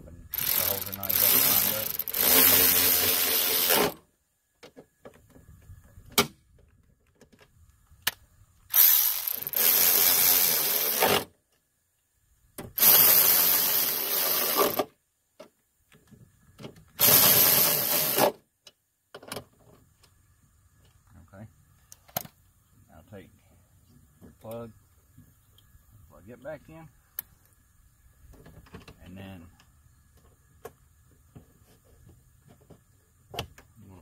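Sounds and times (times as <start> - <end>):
cordless electric ratchet running: 0.3 - 4.0, 8.7 - 11.2, 12.8 - 14.8, 17.0 - 18.3.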